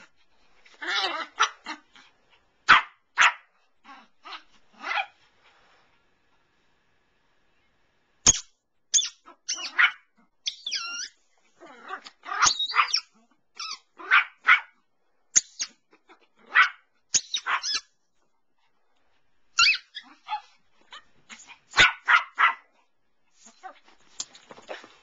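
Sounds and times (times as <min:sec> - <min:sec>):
small dog barking and yipping: 0:00.7 - 0:02.0, 0:02.6 - 0:05.2, 0:09.0 - 0:11.2, 0:11.8 - 0:14.8, 0:15.4 - 0:17.9, 0:19.5 - 0:23.9.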